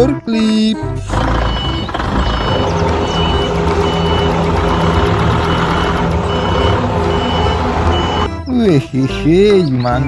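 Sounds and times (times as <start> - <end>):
forklift engine rumble: 0.0 - 9.7
high reverse alarm beeps: 1.4 - 8.3.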